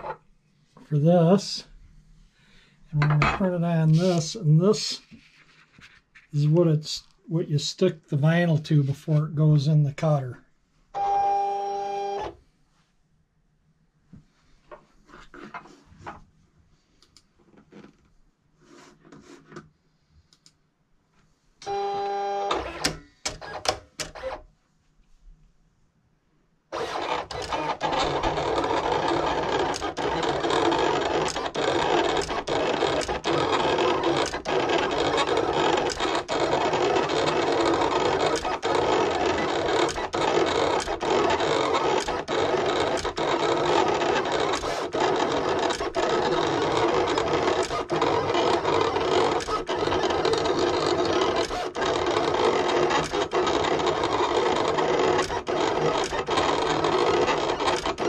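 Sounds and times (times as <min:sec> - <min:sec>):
vinyl cutter mechanical whir: 0:21.6 - 0:24.4, 0:26.7 - 0:58.0.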